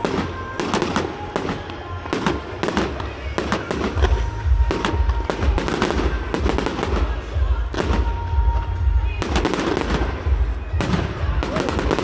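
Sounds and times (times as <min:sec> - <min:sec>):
fireworks bangs and crackles: 0:00.0 - 0:12.0.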